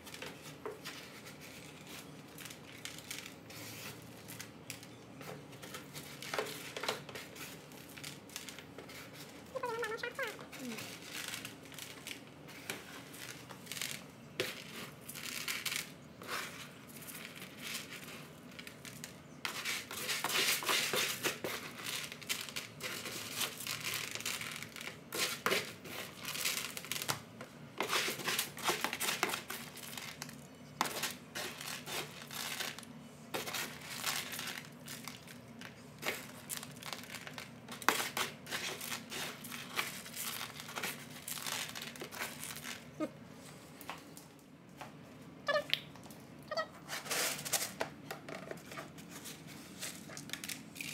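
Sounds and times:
scoop sifting cat litter: 0.0 - 43.8, 46.7 - 50.9.

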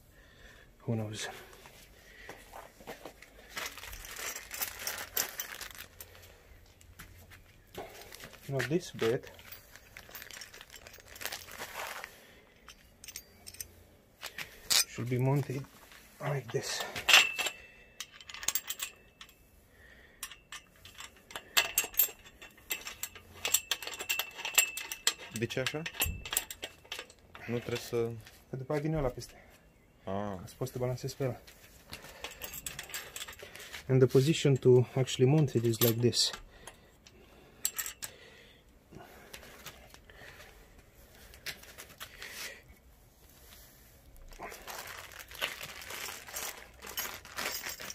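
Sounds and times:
soft handling noise: 0.9 - 19.6, 20.2 - 47.9
metallic clicks and clinks: 3.6 - 6.9, 7.9 - 15.7, 16.5 - 19.4, 20.0 - 28.3, 31.9 - 38.2, 44.9 - 47.9
metal hook clicks: 20.2 - 27.9.

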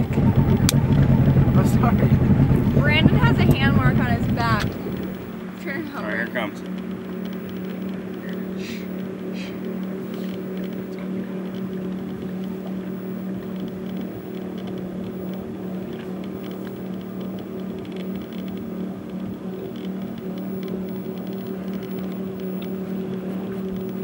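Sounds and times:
boat engine drone: 0.0 - 24.0
faint ticks: 6.2 - 24.0.

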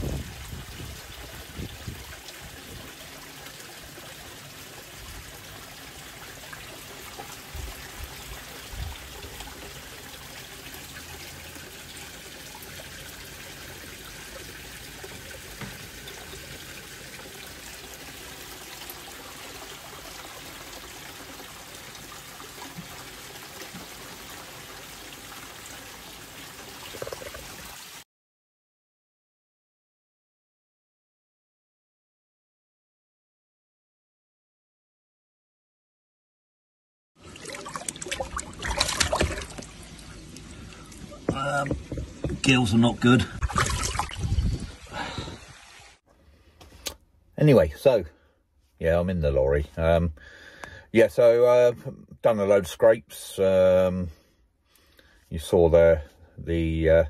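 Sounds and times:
trickle of running water: 0.0 - 28.0, 37.2 - 48.0
soft low bumps: 41.0 - 42.8.

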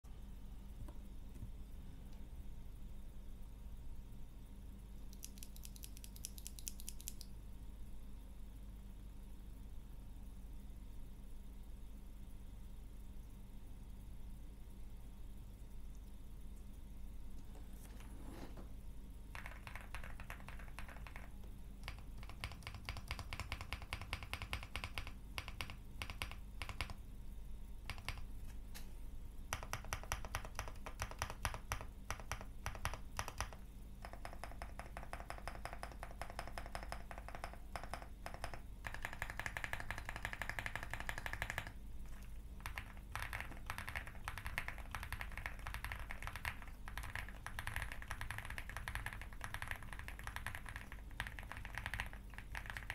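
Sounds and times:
fast typing on mechanical keyboard: 5.1 - 7.3, 19.3 - 27.0, 27.8 - 28.3, 29.5 - 52.9.

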